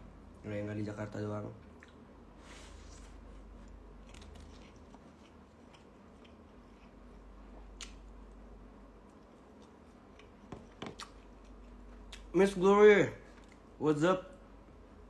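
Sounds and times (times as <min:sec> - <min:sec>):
person chewing food: 0:03.5 - 0:08.4, 0:09.0 - 0:12.3.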